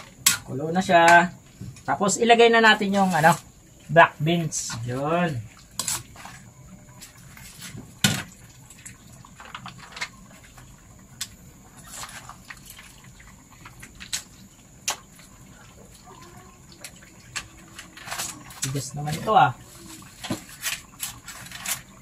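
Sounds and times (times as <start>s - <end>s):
sharp pops and crackles: 13.6s - 15.3s.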